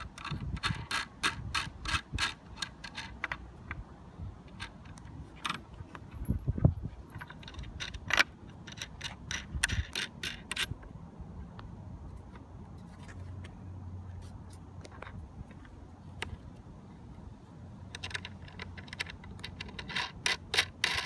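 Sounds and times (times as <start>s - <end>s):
nut spinning on bolt clicking: 0.0s - 3.8s, 7.1s - 10.8s, 17.9s - 21.0s.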